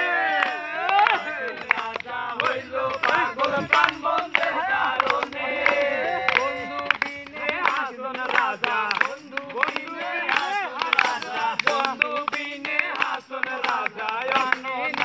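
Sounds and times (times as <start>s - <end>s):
hand claps: 0.0s - 15.0s
young men singing unaccompanied: 0.0s - 15.0s.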